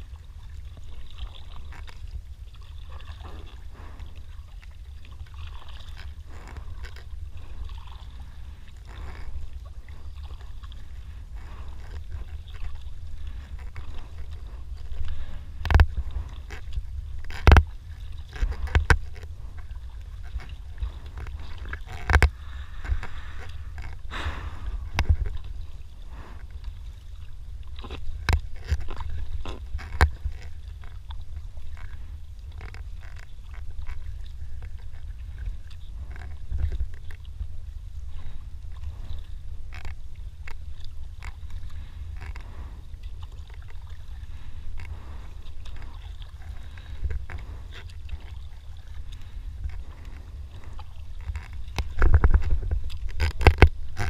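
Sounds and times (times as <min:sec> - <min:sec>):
paddle dipping and dripping: 0:00.0 - 0:54.0
wind rumble on microphone: 0:00.0 - 0:54.0
paddle knocking against hull: 0:11.5 - 0:25.6.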